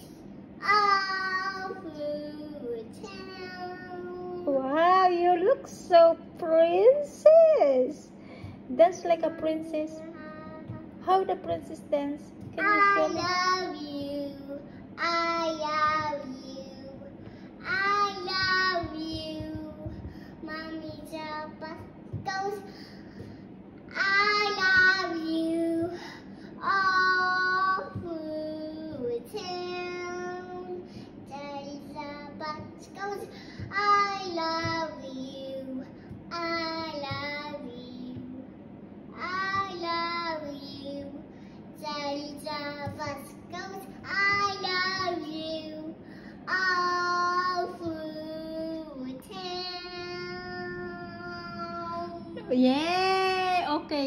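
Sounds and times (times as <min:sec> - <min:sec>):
girl singing: 0:00.0 - 0:04.5, 0:09.6 - 0:11.0, 0:12.3 - 0:23.3, 0:23.9 - 0:38.5, 0:39.1 - 0:53.6.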